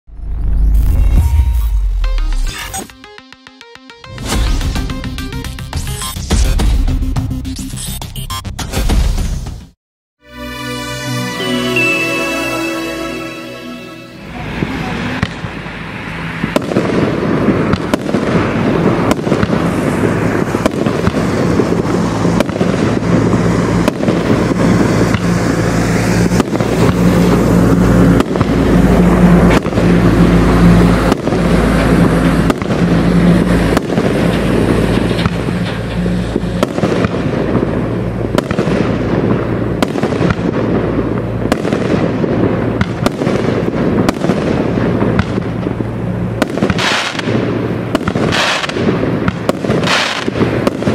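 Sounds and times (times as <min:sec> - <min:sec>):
aerial firework bursts: 0:11.2 - 0:50.9
firework cake firing: 0:16.4 - 0:28.8, 0:32.4 - 0:50.9.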